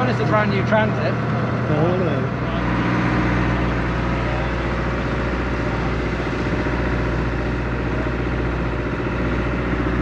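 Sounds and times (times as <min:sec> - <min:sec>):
boat engine humming: 0:00.0 - 0:10.0.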